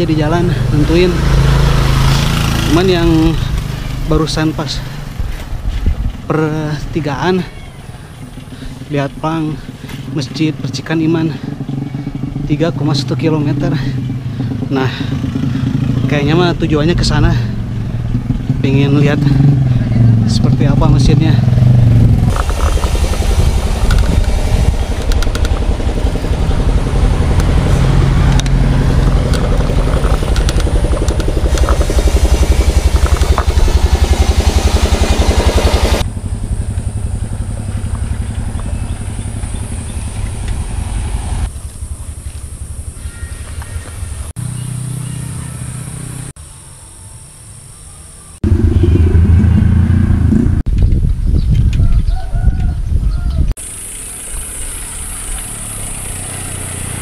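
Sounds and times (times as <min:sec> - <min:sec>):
vehicle engine passing: 0:00.0 - 0:06.9, 0:07.8 - 0:50.7, 0:53.6 - 0:57.0
road noise: 0:00.0 - 0:57.0
wind buffeting microphone: 0:05.0 - 0:06.4, 0:16.6 - 0:36.6, 0:48.4 - 0:53.6
bicycle clicks and rattles: 0:22.3 - 0:26.4, 0:27.4 - 0:35.7.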